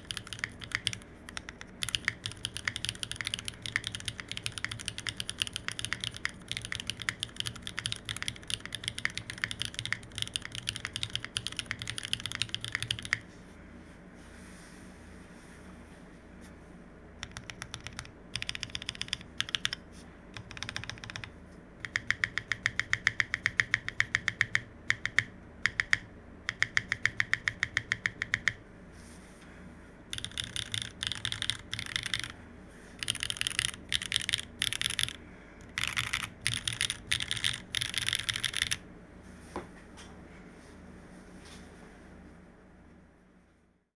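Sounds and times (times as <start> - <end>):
clacky mechanical keyboard typing: 0.0 - 13.2, 17.2 - 19.8, 20.4 - 28.6, 30.1 - 32.4, 33.0 - 38.8.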